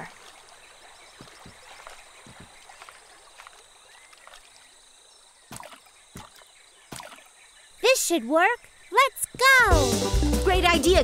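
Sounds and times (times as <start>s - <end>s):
water plops: 0.0s - 4.8s, 5.4s - 7.4s
small chirp: 0.0s - 9.6s.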